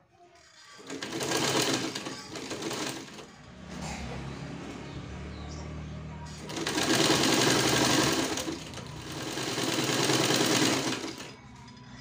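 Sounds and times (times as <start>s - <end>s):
sewing machine running: 0.8s - 3.4s, 6.4s - 11.4s.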